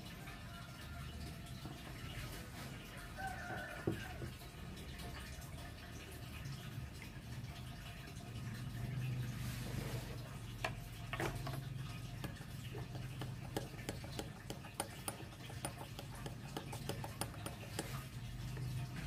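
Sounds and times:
teaspoon clinking against glass bowl: 13.2 - 18.1.

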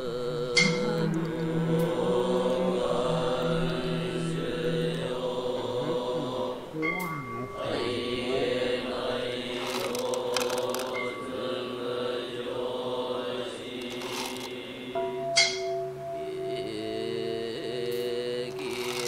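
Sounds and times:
layered drone tones: 0.0 - 19.0
thin high tone: 0.3 - 11.7
cluster of sharp clicks: 9.5 - 11.1, 13.8 - 14.6.

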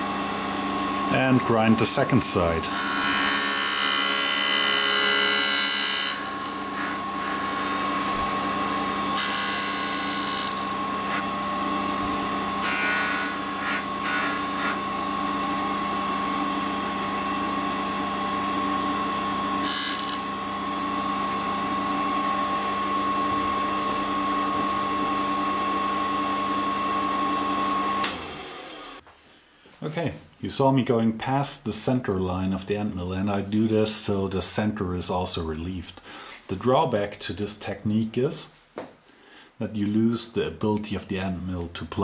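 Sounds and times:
grinder spindle whine: 0.0 - 29.0.

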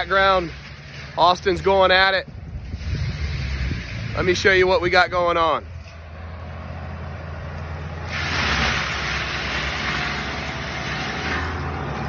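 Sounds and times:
rushing noise: 8.0 - 11.7.

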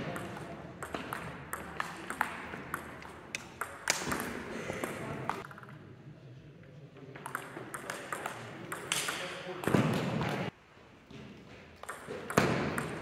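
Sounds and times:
table tennis ball clicking: 0.1 - 5.8, 7.2 - 9.4, 11.8 - 13.0.

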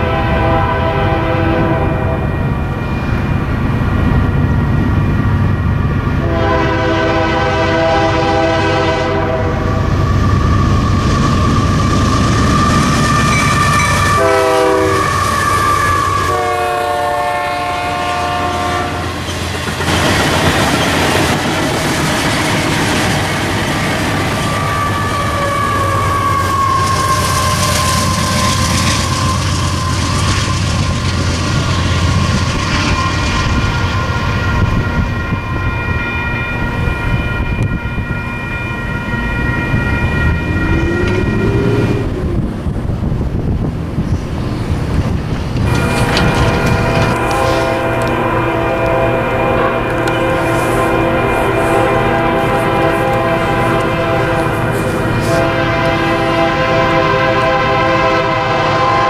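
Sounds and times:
locomotive air horn blasts: 0.0 - 2.4, 6.2 - 10.8, 11.4 - 19.2, 24.4 - 42.2, 45.7 - 59.0
freight cars rumbling and clattering: 39.4 - 48.4.

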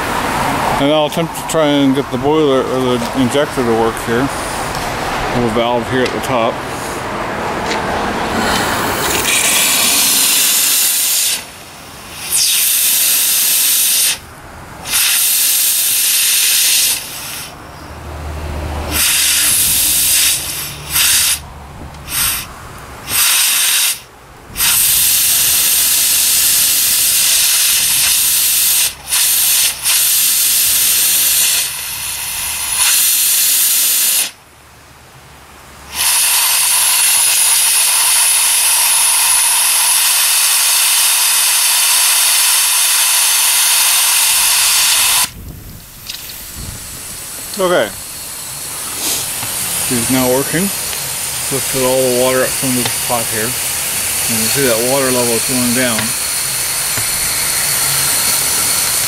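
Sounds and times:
steam hissing: 8.2 - 14.2, 14.8 - 17.6, 18.8 - 34.4, 35.9 - 59.0
low rumble: 45.3 - 50.0.

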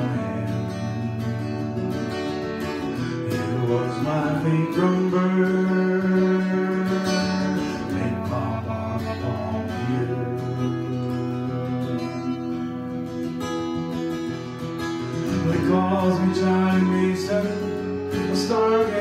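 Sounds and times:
acoustic guitar: 0.0 - 19.0
clarinet holding long notes: 3.3 - 13.6, 15.2 - 19.0.

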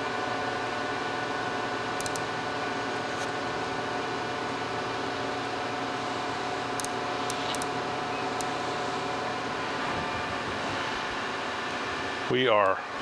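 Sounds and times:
machine shop equipment humming: 0.0 - 13.0.

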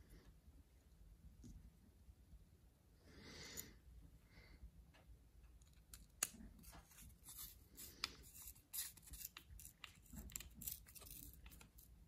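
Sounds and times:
screwdriver clicking and scraping: 5.6 - 11.9.

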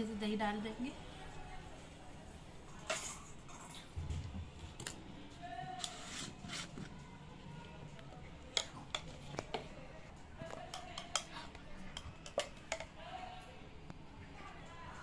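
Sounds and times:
metal spoon clinking on pans: 10.6 - 13.0.

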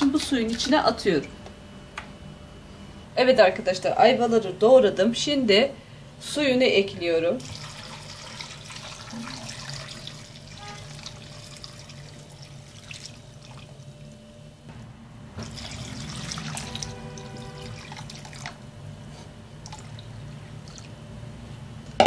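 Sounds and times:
water pouring into a pot: 7.4 - 14.0, 15.4 - 18.6.

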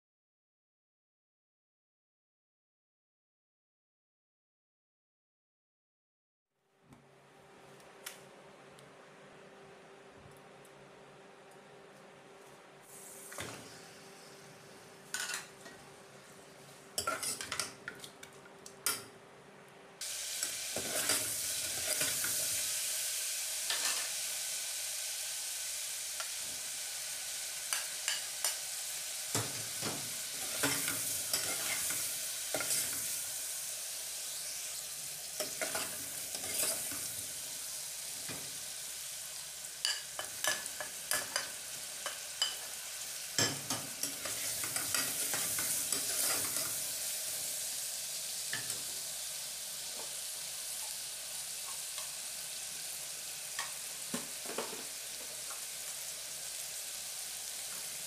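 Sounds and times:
chicken sizzling in oil: 20.0 - 58.0.

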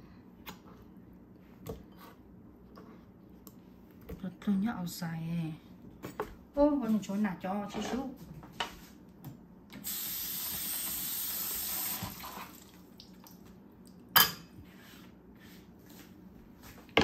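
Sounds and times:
kitchen tap running: 9.8 - 13.2.

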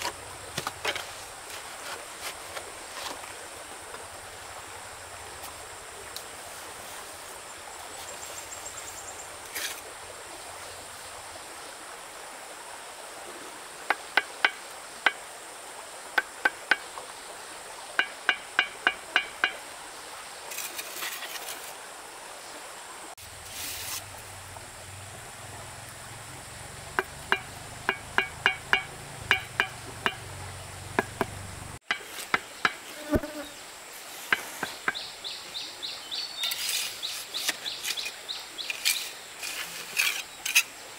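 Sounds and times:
high insect drone: 23.2 - 40.8
sharp knocking like hammering: 26.9 - 30.3, 30.9 - 33.2.

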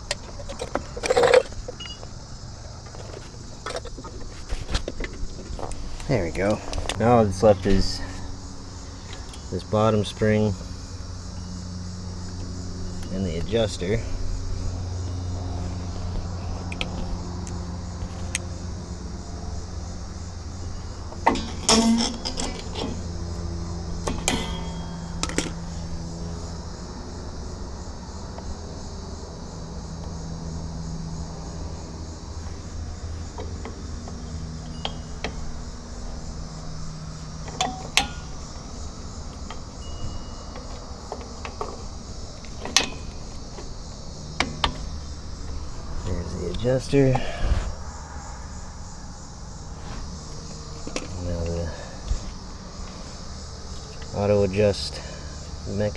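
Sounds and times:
steady low hum: 0.0 - 55.9
metal clinks and clicks: 37.4 - 38.6.

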